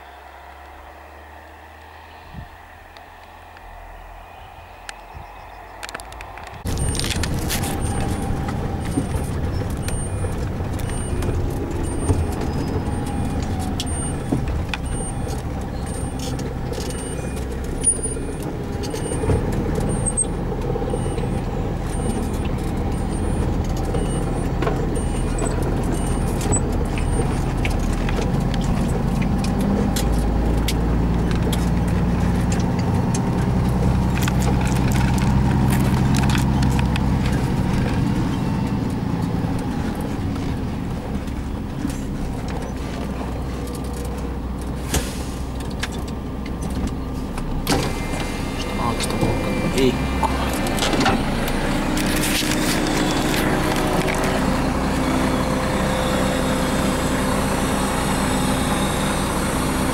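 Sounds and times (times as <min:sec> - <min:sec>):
heavy truck engine running: 0:00.0 - 0:59.9
faint high-pitched beeps: 0:11.8 - 0:19.3, 0:19.9 - 0:27.4.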